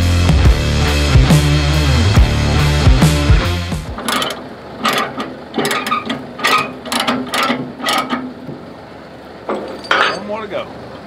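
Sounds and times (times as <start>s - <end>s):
metal ratchet clicking: 4.0s - 8.3s.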